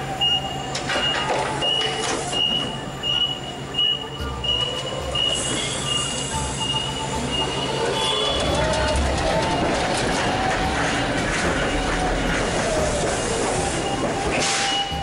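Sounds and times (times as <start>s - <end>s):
forklift and pallet clatter: 0.1s - 15.0s
forklift warning beeps: 0.2s - 10.4s, 13.4s - 15.0s.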